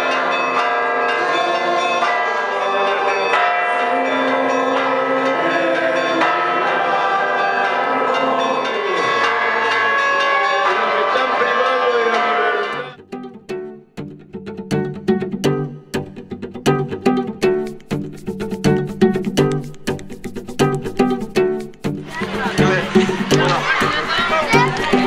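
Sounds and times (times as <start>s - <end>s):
church bells pealing: 0.0s - 13.0s, 22.0s - 25.0s.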